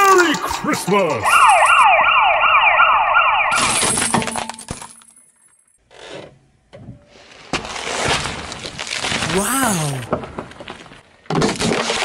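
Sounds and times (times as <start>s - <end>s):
siren-like wail: 1.2s - 3.6s.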